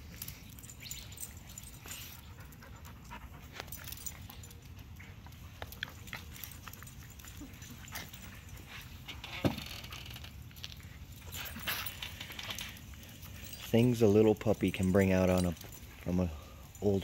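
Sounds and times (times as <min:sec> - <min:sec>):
dog panting: 0:01.3 - 0:09.0.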